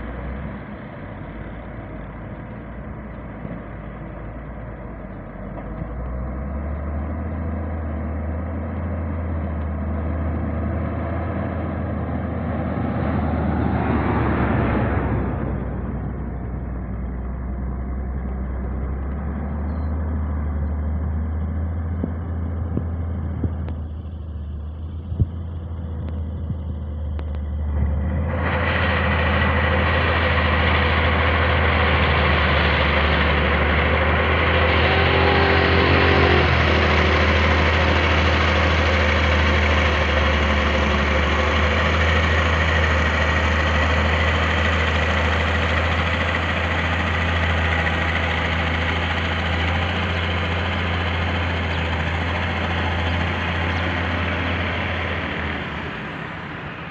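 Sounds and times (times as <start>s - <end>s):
diesel engine running under load: 0.0s - 56.9s.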